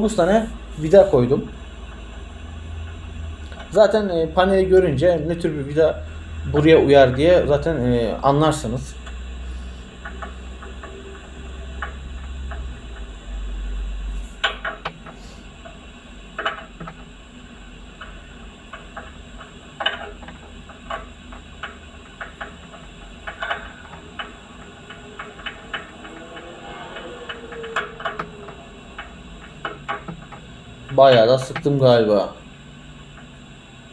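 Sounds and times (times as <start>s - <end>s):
low rumble: 21.1s - 31.5s.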